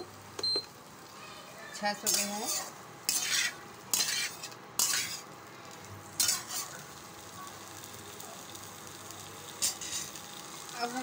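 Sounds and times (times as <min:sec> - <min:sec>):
vegetables sizzling in oil: 0:00.0 - 0:11.0
spatula scraping pan: 0:01.9 - 0:05.3, 0:06.2 - 0:06.8, 0:09.6 - 0:10.2.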